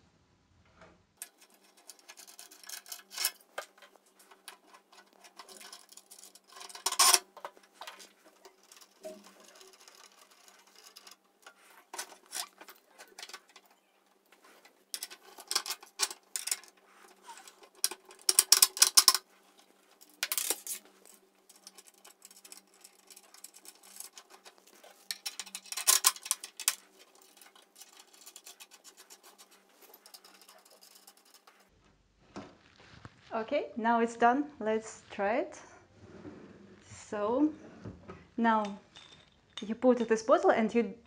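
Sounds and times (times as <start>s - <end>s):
metal clicking and rattling: 1.2s - 31.7s.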